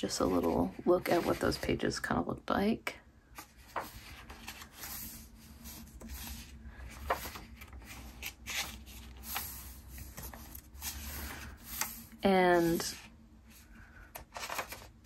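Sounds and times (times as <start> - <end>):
paper pages rustling: 3.3 - 13.0, 14.1 - 15.0.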